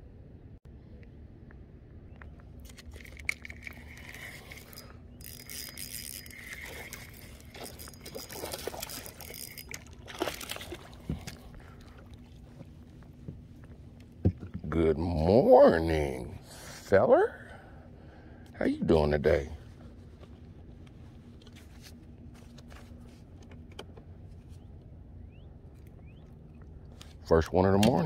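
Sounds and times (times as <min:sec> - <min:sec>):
water splashing and trickling: 0:02.6 - 0:12.8.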